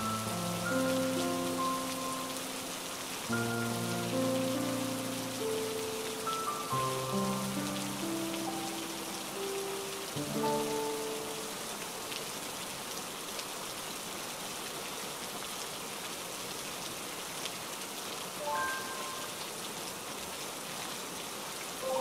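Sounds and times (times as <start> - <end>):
soft musical notes: 0.0 - 11.5, 18.4 - 19.4
rain splashing on wet surface: 0.0 - 22.0.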